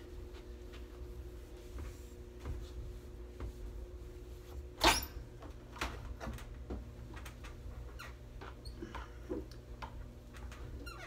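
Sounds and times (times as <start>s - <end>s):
cloth squeaking on glass: 10.7s - 11.0s.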